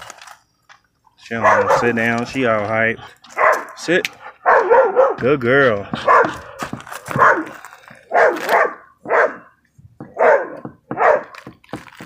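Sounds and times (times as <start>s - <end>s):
dog barking: 1.3s - 2.0s, 3.3s - 3.8s, 4.4s - 5.2s, 6.0s - 6.5s, 7.1s - 11.4s.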